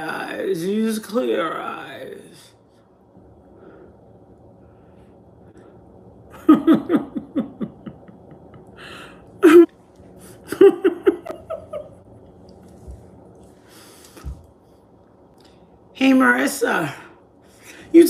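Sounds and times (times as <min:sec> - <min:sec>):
woman laughing: 0:06.3 - 0:12.1.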